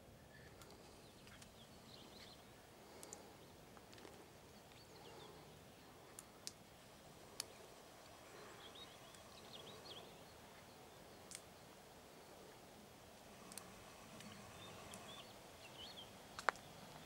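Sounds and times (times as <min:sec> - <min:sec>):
sharp clicks: 0:02.9 - 0:03.2, 0:11.2 - 0:11.5, 0:13.4 - 0:15.2
small bird chirps: 0:07.2 - 0:12.8, 0:13.4 - 0:17.0.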